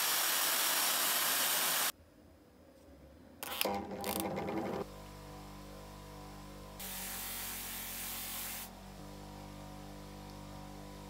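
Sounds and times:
loud hiss: 0.0 - 1.9
bench grinder motor humming: 3.4 - 4.9.

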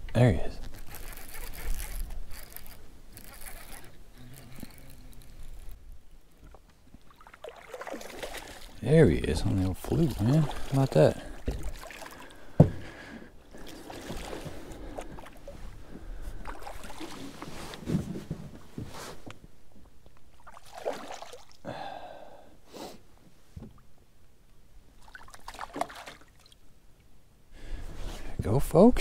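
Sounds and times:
rustling: 0.5 - 5.8, 15.4 - 19.5
water splashing: 6.4 - 12.6, 13.5 - 15.5, 16.4 - 17.4, 20.3 - 21.6, 25.0 - 26.6.

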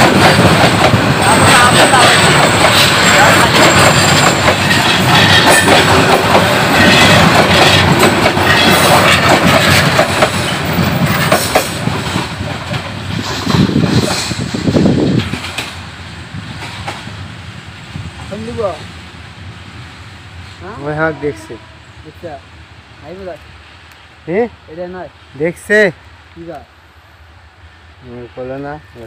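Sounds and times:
train wheels clattering over rail joints: 0.0 - 17.3
passing train rushing: 0.0 - 29.0.

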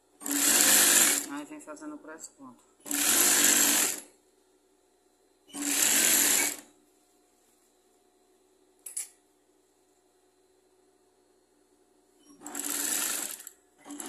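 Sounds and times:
sewing machine stitching: 0.2 - 1.3, 2.8 - 4.0, 5.5 - 6.7, 12.3 - 14.0.

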